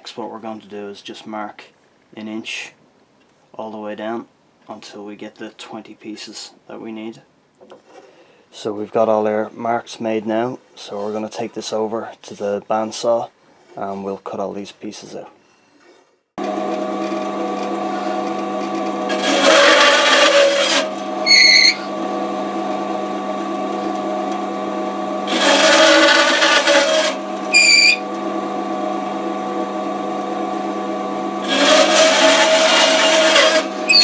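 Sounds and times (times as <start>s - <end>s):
bandsaw humming: 16.4s - 34.0s
saw rasping through wood: 17.8s - 22.0s, 25.2s - 28.0s, 31.4s - 34.0s.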